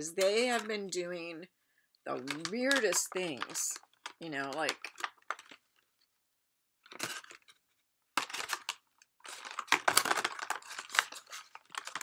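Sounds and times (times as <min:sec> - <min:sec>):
packaging crinkling: 0:02.2 - 0:05.9, 0:06.8 - 0:07.6, 0:08.2 - 0:12.0.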